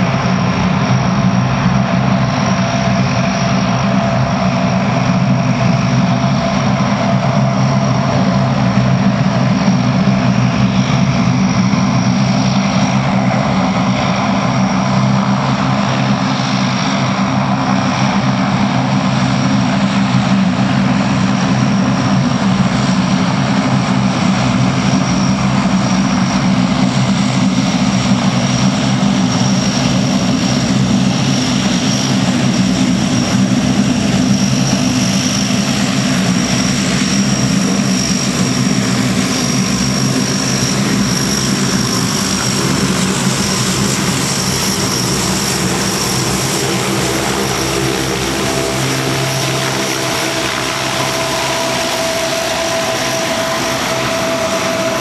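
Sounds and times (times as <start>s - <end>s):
high turbine whine: 0.0s - 55.0s
propeller drone: 0.0s - 55.0s.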